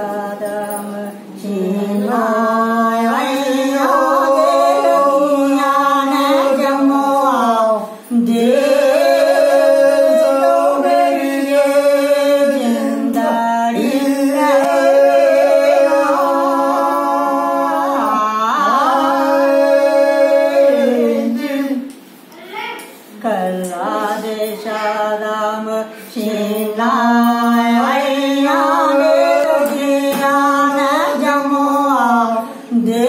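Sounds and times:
woman singing unaccompanied folk song: 0:23.1 - 0:33.0.

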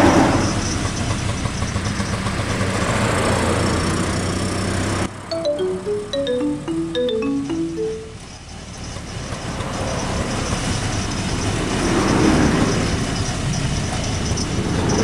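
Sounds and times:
auto-rickshaw engine running: 0:00.2 - 0:05.1, 0:08.3 - 0:15.0.

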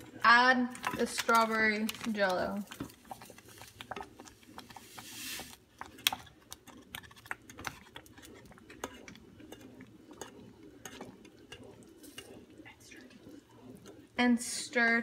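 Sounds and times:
spoon stirring and scraping a pan: 0:00.0 - 0:15.0
powder pouring with soft hiss: 0:01.3 - 0:05.8.

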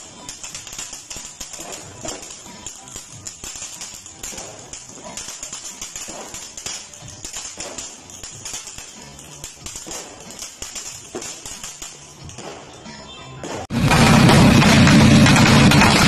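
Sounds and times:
firework hissing and crackling: 0:00.0 - 0:12.5.

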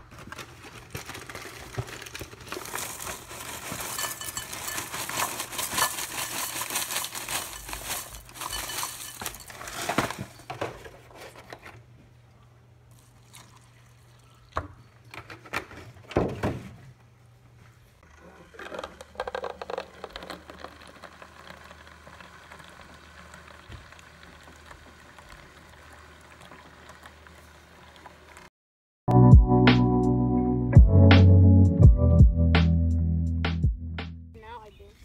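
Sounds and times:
plastic bag crinkling: 0:00.0 - 0:10.5
cereal pouring into ceramic bowl: 0:01.1 - 0:09.8, 0:18.6 - 0:24.2.

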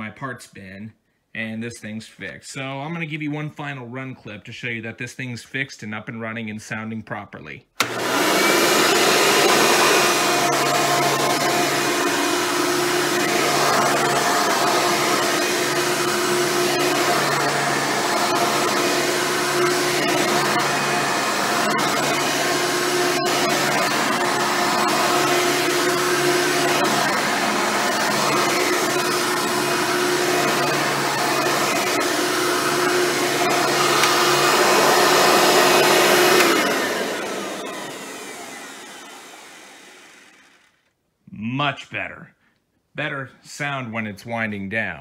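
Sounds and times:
upright vacuum cleaner running: 0:07.8 - 0:40.9.

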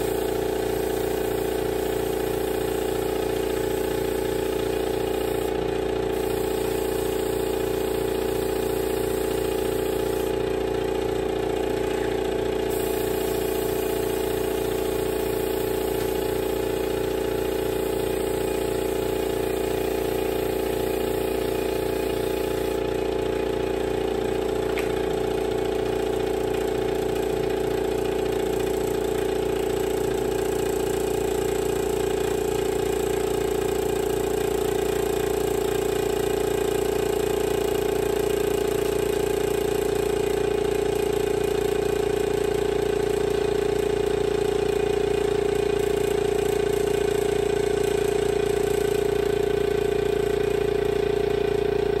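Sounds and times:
air compressor droning: 0:00.0 - 0:52.0.

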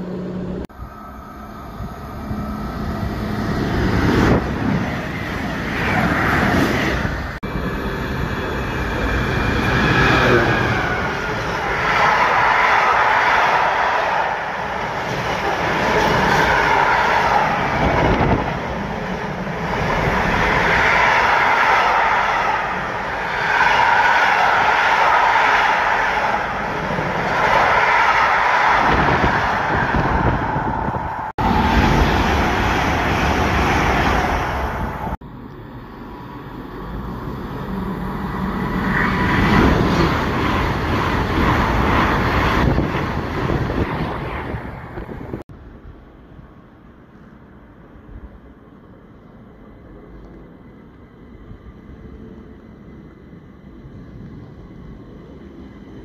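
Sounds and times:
freight train wheels rumbling: 0:00.0 - 0:56.0
passenger train approaching: 0:00.0 - 0:56.0.

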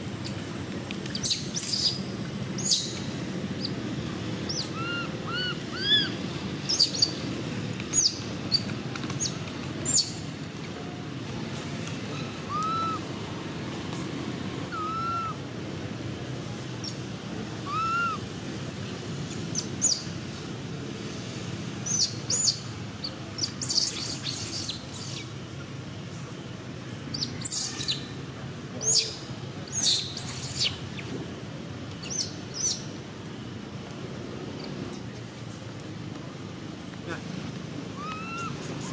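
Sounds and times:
low background hum: 0:00.0 - 0:38.9
bird whistled calls: 0:04.5 - 0:06.1, 0:12.4 - 0:13.0, 0:14.7 - 0:15.4, 0:17.7 - 0:18.2, 0:38.0 - 0:38.9
baby monkey screaming: 0:04.5 - 0:07.1, 0:12.2 - 0:13.0, 0:14.7 - 0:15.4, 0:17.6 - 0:18.2, 0:37.9 - 0:38.6.

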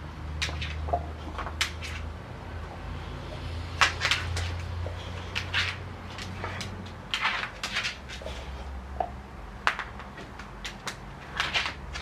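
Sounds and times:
claws clicking on hard floor: 0:00.4 - 0:02.1, 0:03.8 - 0:12.0
dogs snuffling: 0:04.0 - 0:08.8.

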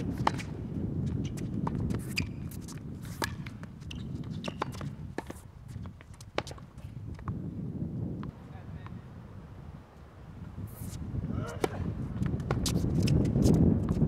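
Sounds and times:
footsteps and shoe scuffs on court: 0:00.0 - 0:07.4, 0:10.5 - 0:14.0
wind rumble on microphone: 0:00.0 - 0:14.0.

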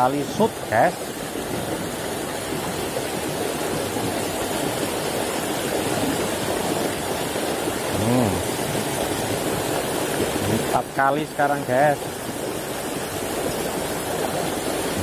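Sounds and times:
stream rushing over stones: 0:00.0 - 0:15.0
person vocalizing: 0:07.9 - 0:08.5.

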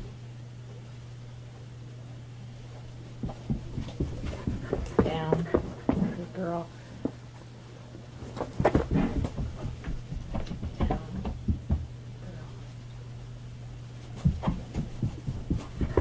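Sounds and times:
steady low hum: 0:00.0 - 0:16.0
soft thumps on carpeted floor: 0:03.2 - 0:06.2, 0:08.4 - 0:11.9, 0:14.1 - 0:16.0.

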